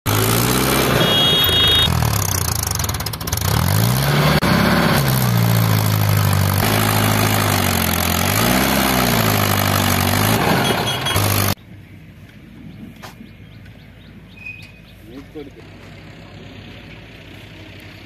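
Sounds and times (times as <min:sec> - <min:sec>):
tractor diesel engine under load: 0:00.0 - 0:11.6.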